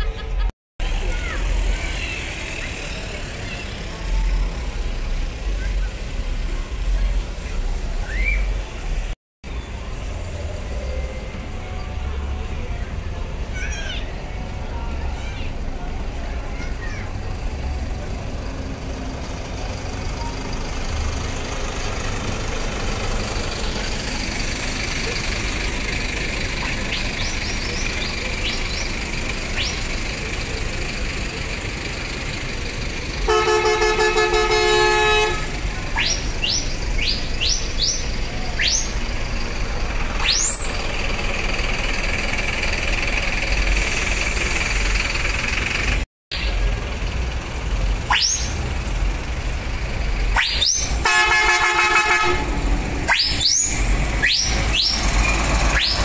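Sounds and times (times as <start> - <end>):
bus diesel engines rumbling: 0.0 - 56.0
short rising whistles: 8.0 - 8.6, 40.2 - 40.9, 48.1 - 48.6, 50.4 - 51.0, 53.0 - 56.0
bus horn blast: 33.1 - 35.8, 51.0 - 52.8.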